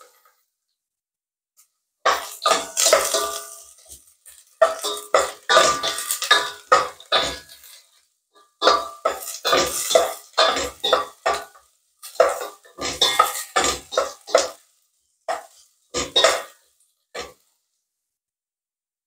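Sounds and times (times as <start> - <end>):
wooden spatula scraping metal pot: 2.1 - 14.6, 15.3 - 16.6.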